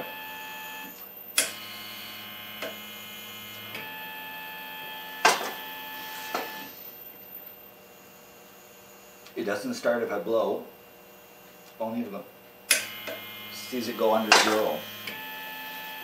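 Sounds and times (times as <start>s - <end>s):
stepper motor whining: 0.0s - 7.5s, 12.7s - 16.0s.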